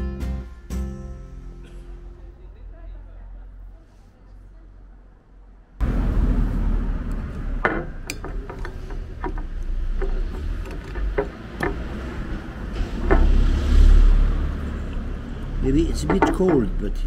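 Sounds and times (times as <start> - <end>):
sharp clicks and knocks: 7.0 - 13.6, 14.8 - 16.9.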